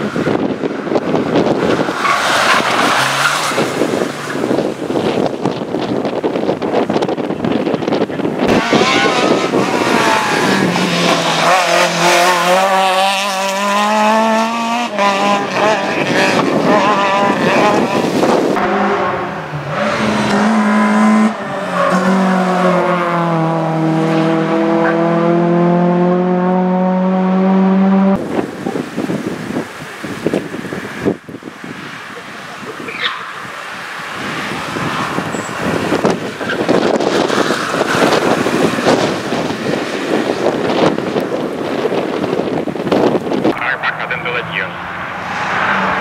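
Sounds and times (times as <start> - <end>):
car engine revving hard: 8.4 - 29.6.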